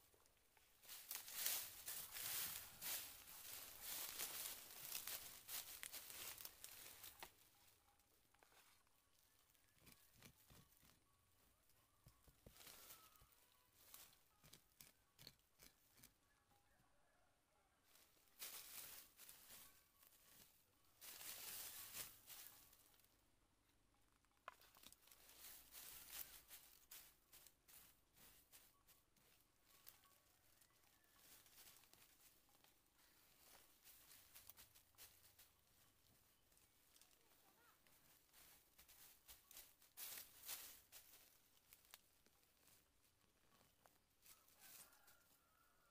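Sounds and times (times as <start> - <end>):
dry leaves rustling and crackling: 0.8 - 7.6, 17.9 - 23.1, 24.6 - 42.9, 43.9 - 45.2.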